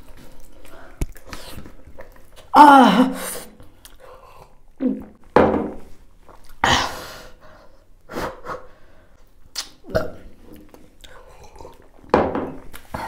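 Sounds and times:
person eating: 0:00.0 - 0:05.3, 0:06.2 - 0:06.6, 0:09.5 - 0:13.0.

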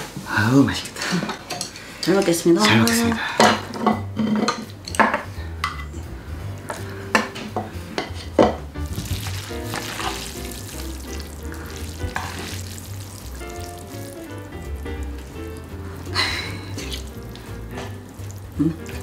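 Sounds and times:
wet sticky noodle mixing: 0:08.8 - 0:19.0.

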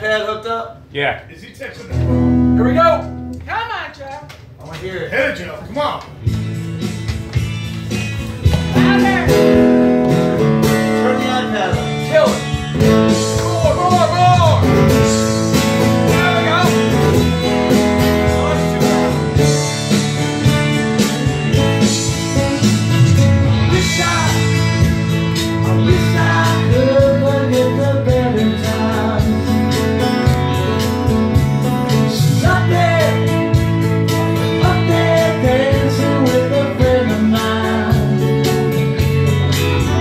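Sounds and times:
acoustic guitars strummed: 0:01.9 - 0:03.4, 0:06.2 - 0:40.0
man singing: 0:20.4 - 0:38.7.

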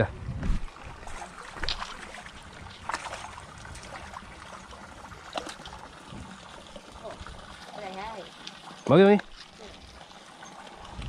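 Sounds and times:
low rumble: 0:00.0 - 0:00.8
trickling water: 0:00.0 - 0:11.0
fish splashing: 0:00.7 - 0:11.0.

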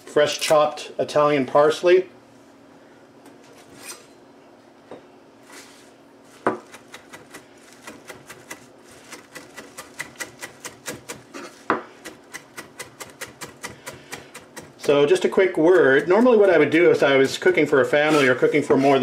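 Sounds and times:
knife chopping herbs on board: 0:06.4 - 0:18.9.

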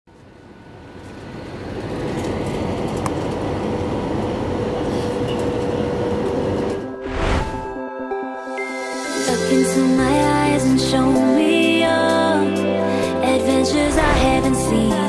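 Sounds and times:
jet airliner cabin noise: 0:01.0 - 0:06.8.

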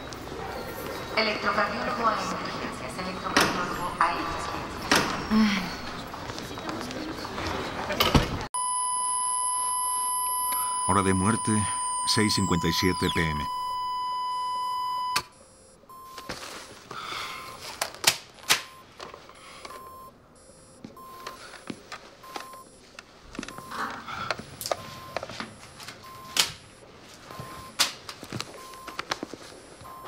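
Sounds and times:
cardiac monitor beeps: 0:03.0 - 0:05.3, 0:08.6 - 0:16.4, 0:17.0 - 0:17.7, 0:18.4 - 0:18.9, 0:19.5 - 0:30.0
monitor flatline tone: 0:08.6 - 0:16.3.

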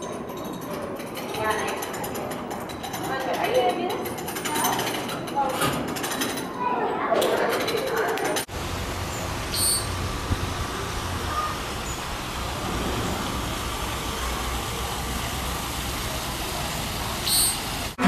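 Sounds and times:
traffic rumble: 0:07.6 - 0:18.0.

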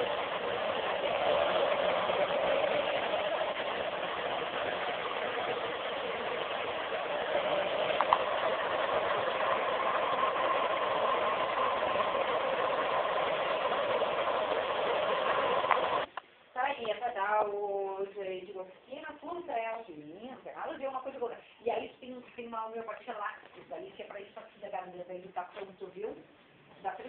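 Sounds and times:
hair dryer blowing: 0:00.0 - 0:16.1.

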